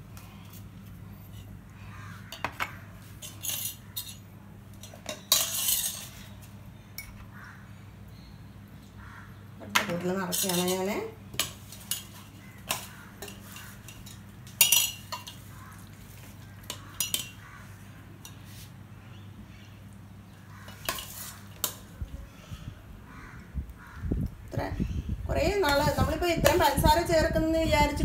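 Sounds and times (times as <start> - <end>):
metal spoon clinking on pot and jars: 2.3 - 6.2, 9.7 - 15.5, 16.6 - 17.4.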